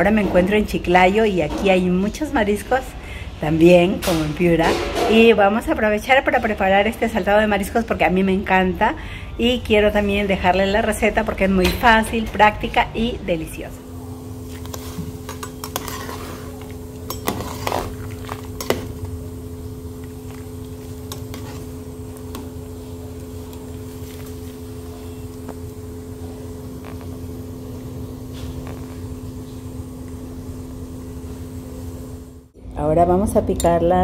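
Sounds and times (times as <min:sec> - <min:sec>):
constant hum: 0:00.0 - 0:34.0
water boiling in a pot: 0:13.3 - 0:32.5
metal spoon clinking against pot: 0:15.3 - 0:16.2, 0:17.0 - 0:17.8.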